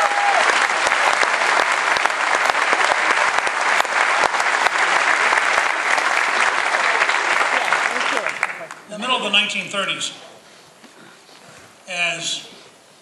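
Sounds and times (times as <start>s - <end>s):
audience applauding loudly: 0.0s - 8.9s.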